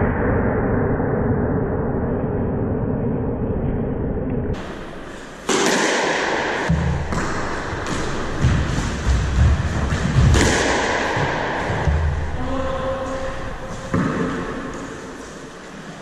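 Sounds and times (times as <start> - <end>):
squash ball cracking off racquets: 4.6 - 12.4, 13.1 - 15.4
heavy thuds: 5.4 - 15.2.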